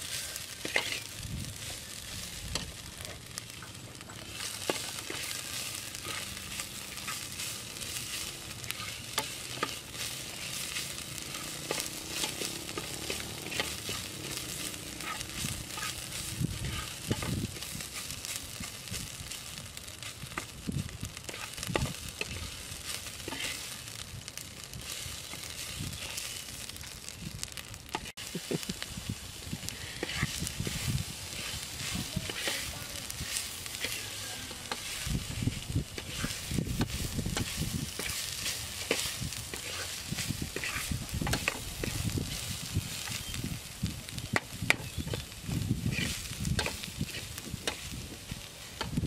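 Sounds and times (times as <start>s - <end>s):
food hissing in a pot: 0.0s - 49.0s
metal spoon scraping a pot: 0.6s - 1.1s.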